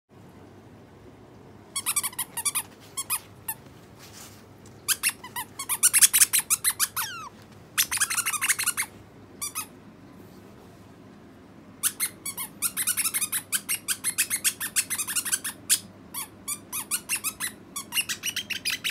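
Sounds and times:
otter chirping: 4.8s - 9.7s, 11.8s - 18.9s.

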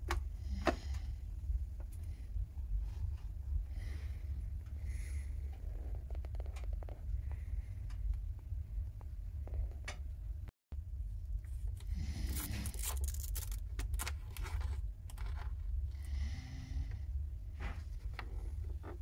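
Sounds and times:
low steady rumble: 0.0s - 19.0s
power cord rustling and scraping: 11.5s - 15.7s.

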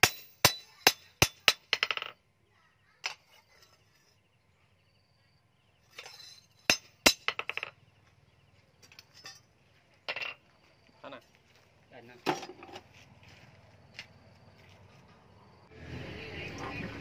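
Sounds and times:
hammer striking metal blade: 0.0s - 1.7s.

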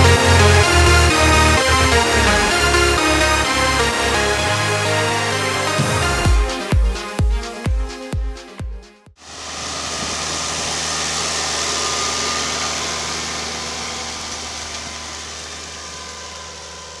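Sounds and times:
tractor diesel engine under load: 0.0s - 6.8s, 9.2s - 17.0s
strong hiss: 9.2s - 17.0s.

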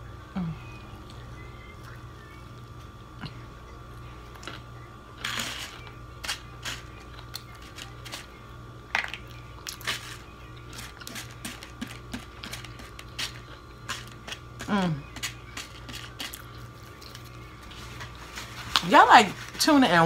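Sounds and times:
faint steady hum: 0.0s - 20.0s
chewing: 9.2s - 18.8s.

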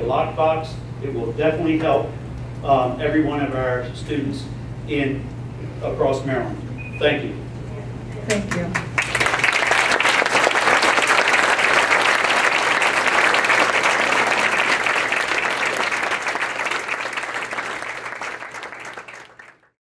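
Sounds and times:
audience applauding: 8.7s - 19.8s.

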